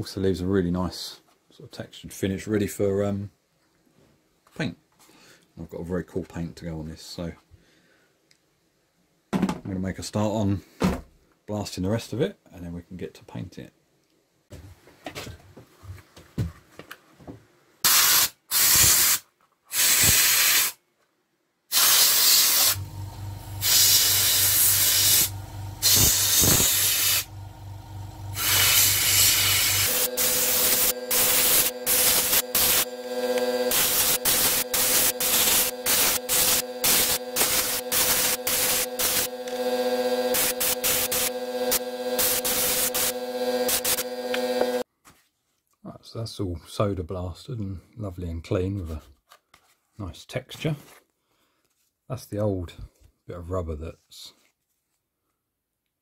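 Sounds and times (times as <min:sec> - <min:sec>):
soda blasting gun hissing: 0:17.8 - 0:20.8, 0:21.7 - 0:22.9, 0:23.6 - 0:27.3, 0:28.3 - 0:39.6, 0:40.2 - 0:44.8
steady hum: 0:22.8 - 0:44.8.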